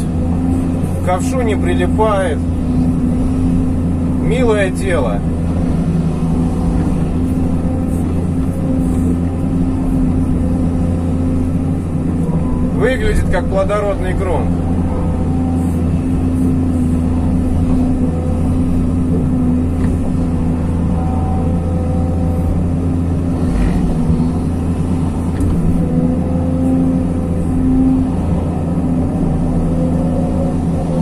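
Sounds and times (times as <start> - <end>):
excavator diesel engine running: 0.0 - 31.0
hydraulic whine: 0.0 - 31.0.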